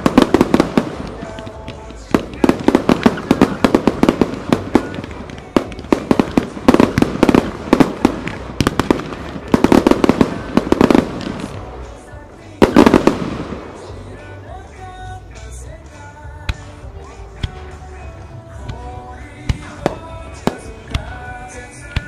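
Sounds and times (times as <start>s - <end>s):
firework booms and cracks: 0.0s - 11.7s, 12.6s - 14.0s, 19.4s - 21.3s.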